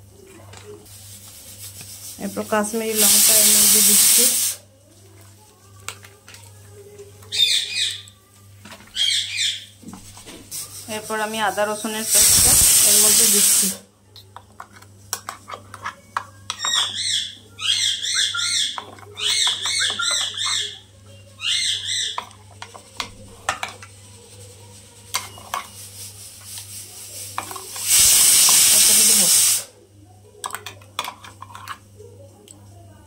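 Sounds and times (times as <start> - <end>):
food mixed in steel bowl: 0.0 - 29.4, 30.3 - 32.6
loud hiss: 2.9 - 4.6, 11.9 - 13.8, 27.2 - 29.7.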